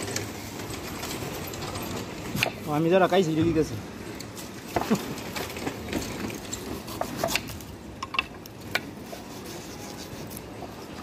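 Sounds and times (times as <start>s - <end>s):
knife cutting pineapple rind: 6.7s - 7.6s.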